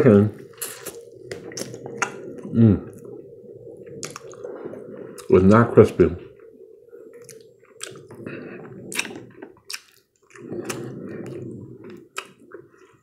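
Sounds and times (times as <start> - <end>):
person chewing: 0.5 - 3.1, 3.9 - 4.5, 7.1 - 13.0
wet lip smacks: 8.9 - 10.8.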